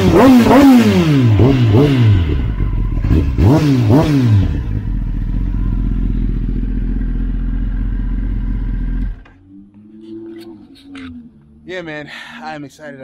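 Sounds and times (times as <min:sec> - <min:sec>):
motorcycle engine idling: 0:00.0 - 0:09.4
motorcycle throttle blips: 0:00.0 - 0:09.4.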